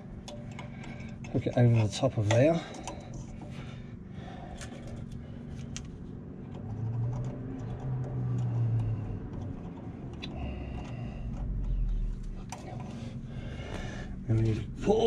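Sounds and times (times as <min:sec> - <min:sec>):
low hum: 0:00.0 - 0:15.0
metallic clicks of pliers and spring: 0:06.5 - 0:11.0.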